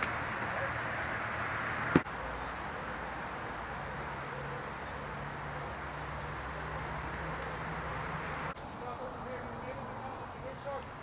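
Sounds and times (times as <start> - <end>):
steady hiss: 0.0 - 11.0
faint bird chirps: 2.4 - 3.0.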